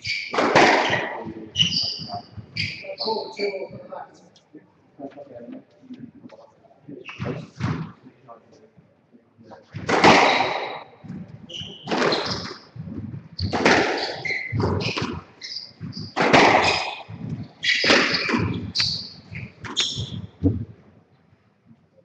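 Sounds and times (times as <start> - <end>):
squash ball striking rackets and walls: 0.0 - 3.2, 9.7 - 20.7
shoes squeaking on wooden floor: 0.0 - 4.0, 9.8 - 20.8.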